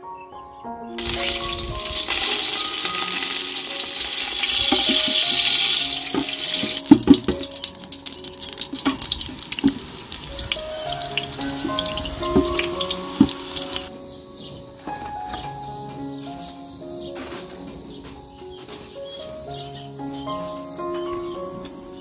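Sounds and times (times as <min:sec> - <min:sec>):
oil sizzling and crackling in a pot: 0:01.0 - 0:13.9.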